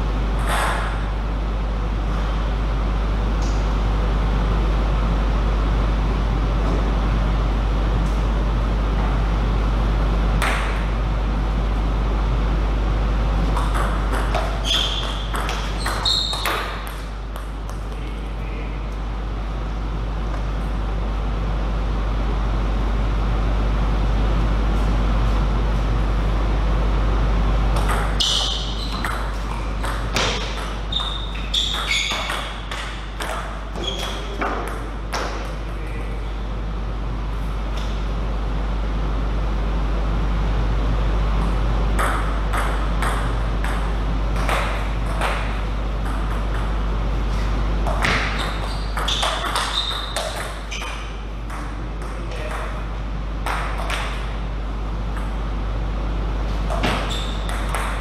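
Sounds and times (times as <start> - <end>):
steady low hum: 0.0 - 58.0
short high squeaks: 14.6 - 16.8, 28.2 - 29.2, 30.8 - 32.6, 33.8 - 34.4, 48.2 - 51.0, 57.0 - 57.5.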